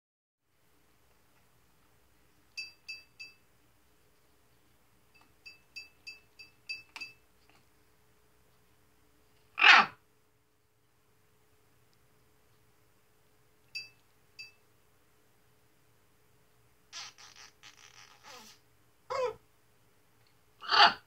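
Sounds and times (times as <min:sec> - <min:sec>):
macaw harsh squawk: 0:09.6 - 0:10.0, 0:20.6 - 0:21.0
macaw high pips: 0:09.6 - 0:10.0, 0:17.0 - 0:19.4, 0:20.6 - 0:21.0.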